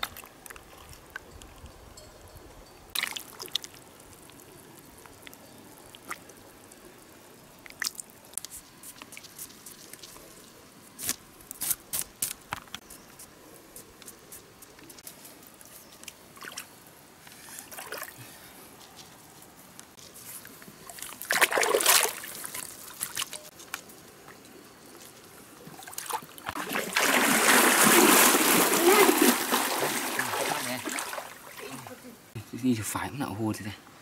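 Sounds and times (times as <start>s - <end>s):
water drips: 2.6s - 10.2s
squelches in mud: 13.2s - 32.4s
water sloshing: 20.8s - 23.5s, 25.6s - 32.3s.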